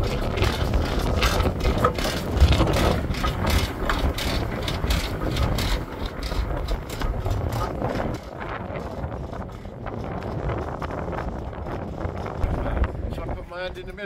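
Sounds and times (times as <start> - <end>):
steam engine clanking and rattling: 0.0 - 9.6
low engine rumble: 0.0 - 14.0.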